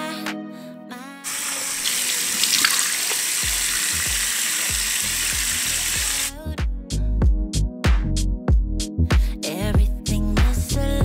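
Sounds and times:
water running from sink tap: 0:01.3 - 0:06.3
hands splashing water on face: 0:01.4 - 0:06.1
background music bass beat: 0:03.4 - 0:11.0.

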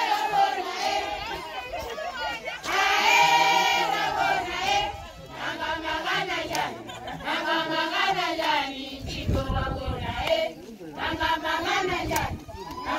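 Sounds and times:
women and children singing: 0:00.0 - 0:12.9.

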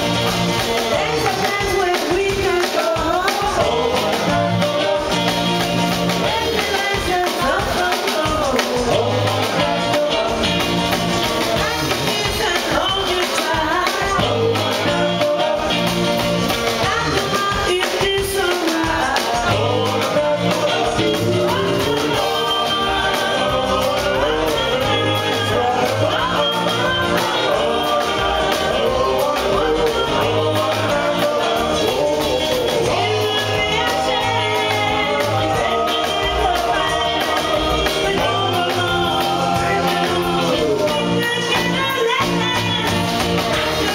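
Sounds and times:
drums: 0:00.0 - 0:43.9
live band playing: 0:00.0 - 0:43.9
walking upright bass: 0:00.0 - 0:43.9
woman singing: 0:00.6 - 0:10.8, 0:11.4 - 0:15.9, 0:16.6 - 0:43.9.

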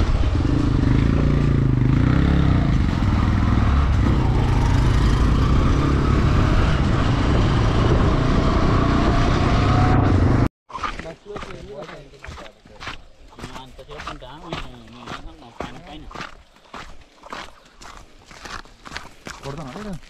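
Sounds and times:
motorcycle engine running: 0:00.0 - 0:05.8
wind rushing over microphone: 0:02.8 - 0:10.4.

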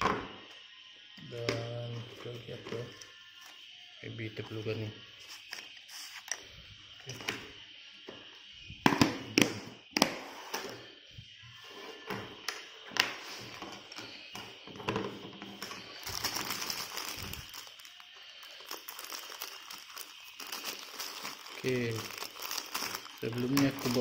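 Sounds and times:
plastic bag crinkling: 0:15.6 - 0:24.0
scissors cutting plastic: 0:15.6 - 0:24.0.

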